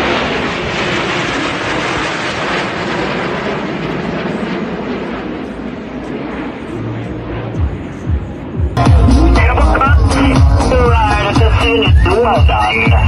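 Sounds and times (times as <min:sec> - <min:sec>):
jet engines roaring overhead: 0:00.0 - 0:13.0.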